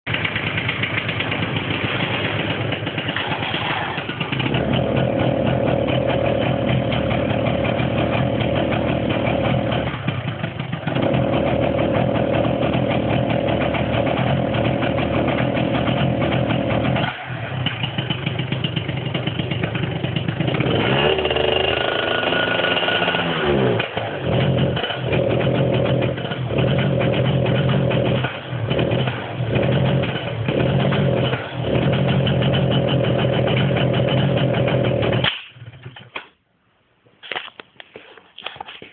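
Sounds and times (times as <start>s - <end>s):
engine running: 0.1s - 36.0s.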